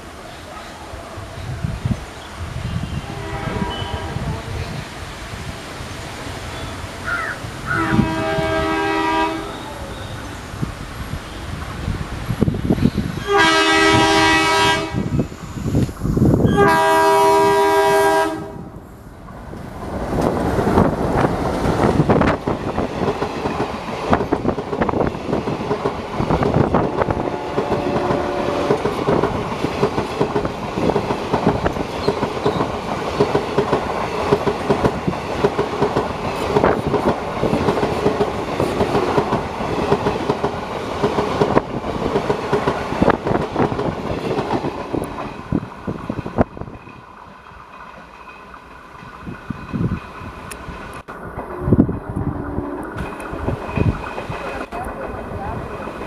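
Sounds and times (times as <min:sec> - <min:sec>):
locomotive horn blasts: 0:02.8 - 0:04.2, 0:07.7 - 0:09.8, 0:13.2 - 0:15.2, 0:16.5 - 0:18.7, 0:27.0 - 0:28.8
train wheels clicking over rail joints: 0:19.2 - 0:56.0.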